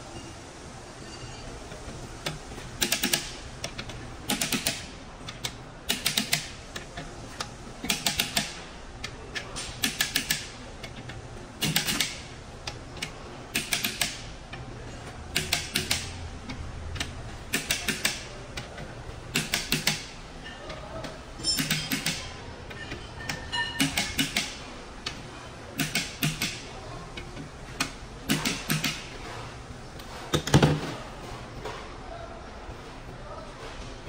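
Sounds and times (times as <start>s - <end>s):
ratchet wrench clicking: 2.2s - 7.1s, 9.8s - 11.0s, 15.3s - 16.2s.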